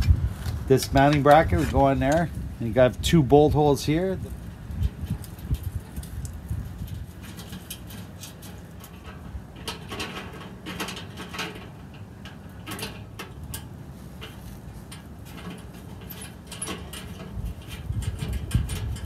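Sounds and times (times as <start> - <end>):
small metal clicks and scrapes: 4.2 - 19.0.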